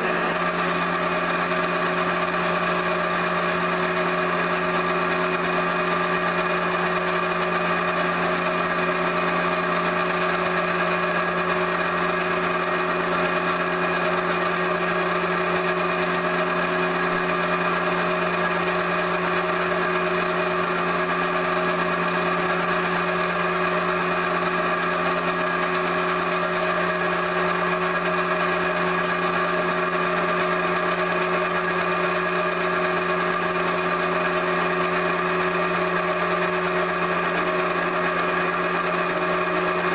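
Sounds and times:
electric motor humming: 0:00.0 - 0:10.9.

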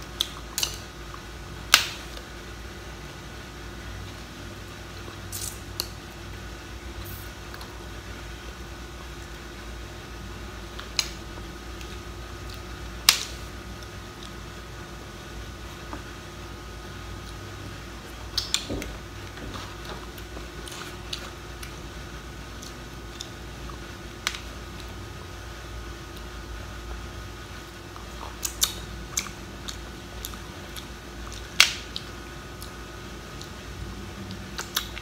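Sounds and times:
faint hum: 0:00.0 - 0:35.0
soft chewing: 0:17.2 - 0:21.8, 0:27.6 - 0:35.0.

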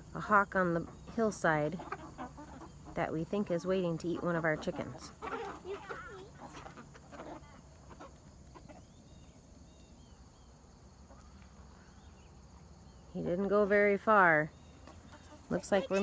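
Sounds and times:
chickens clucking: 0:00.0 - 0:12.6, 0:13.2 - 0:16.0
faint bird chirps: 0:05.6 - 0:13.4.

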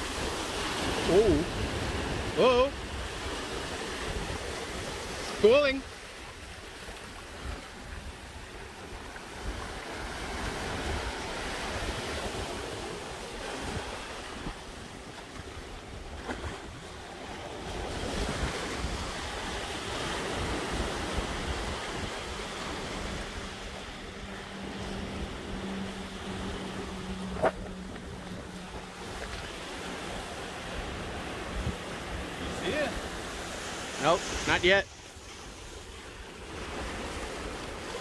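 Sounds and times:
surf washing onto rocks: 0:00.0 - 0:07.7, 0:08.6 - 0:38.0
wind buffeting microphone: 0:07.2 - 0:33.8.

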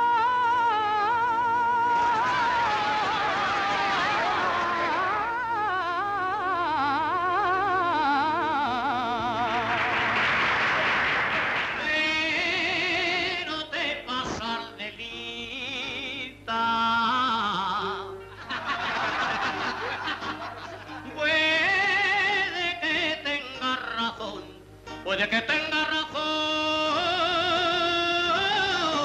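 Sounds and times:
man singing: 0:00.0 - 0:09.9, 0:11.8 - 0:18.2, 0:20.9 - 0:29.0
woman singing: 0:00.0 - 0:09.9, 0:11.8 - 0:18.2
audience applause: 0:02.0 - 0:05.3, 0:09.5 - 0:12.0.

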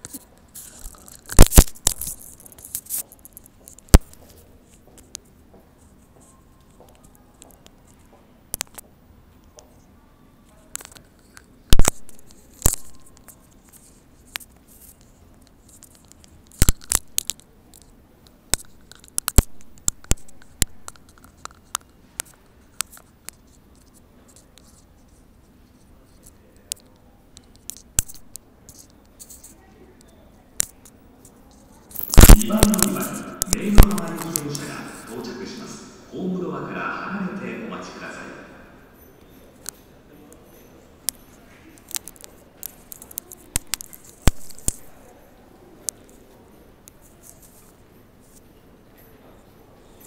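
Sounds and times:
quiet subway platform background: 0:00.0 - 0:32.0, 0:37.3 - 0:50.0
sharp clicks and taps: 0:31.9 - 0:35.1.

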